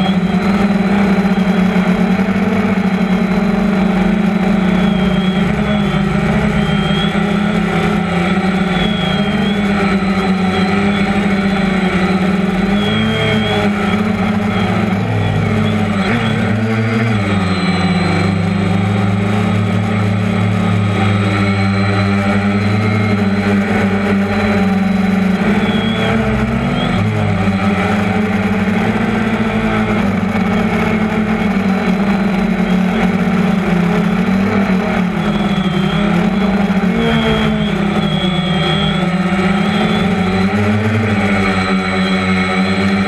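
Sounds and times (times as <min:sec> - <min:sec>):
drone motors and propellers humming: 0:00.0 - 0:43.0.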